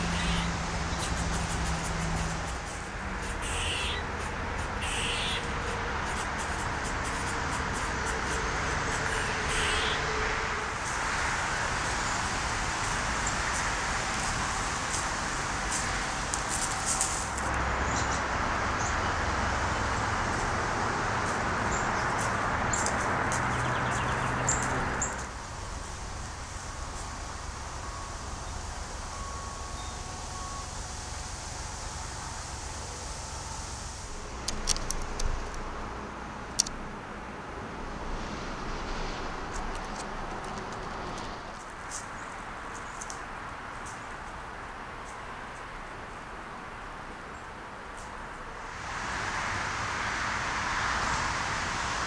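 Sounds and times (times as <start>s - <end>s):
bird calls: 0.0s - 10.0s
highway traffic roar: 0.0s - 52.0s.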